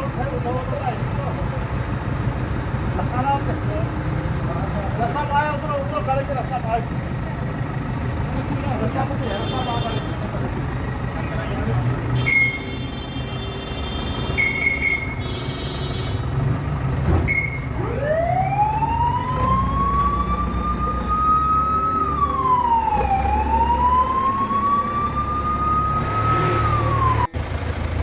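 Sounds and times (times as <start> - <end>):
diesel engine running: 0.0 - 28.0
wailing siren: 17.6 - 27.4.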